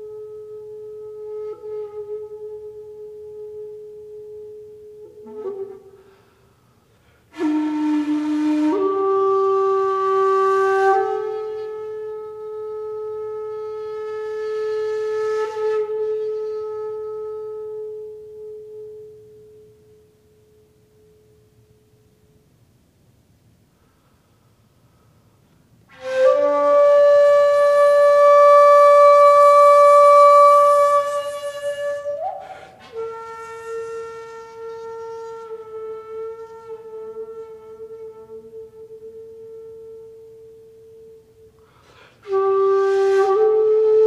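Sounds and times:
solo flute music: 0.0s - 22.1s, 25.8s - 44.0s.

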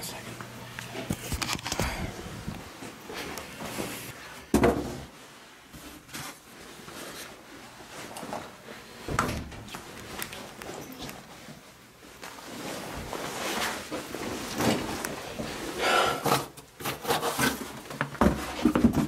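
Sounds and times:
objects knocking and rustling: 4.5s - 5.2s, 16.3s - 19.0s.

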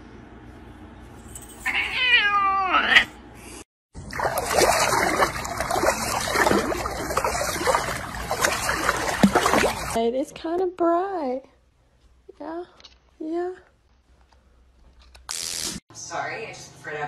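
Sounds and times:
cat meowing: 1.7s - 3.1s
dog splashing in water: 4.0s - 10.0s.

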